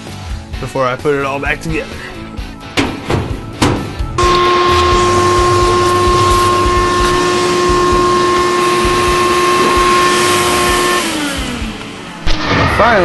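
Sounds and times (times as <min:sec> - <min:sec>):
motor winding down: 0:04.2 - 0:12.2
vacuum cleaner running: 0:04.2 - 0:12.2.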